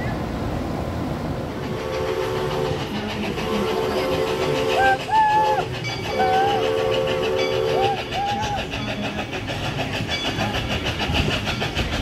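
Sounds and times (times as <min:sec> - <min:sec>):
steam locomotive whistle blasts: 0:01.7 - 0:08.6.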